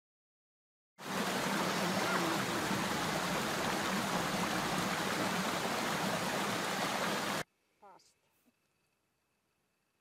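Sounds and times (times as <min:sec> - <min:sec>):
stream running water: 0:01.0 - 0:07.5.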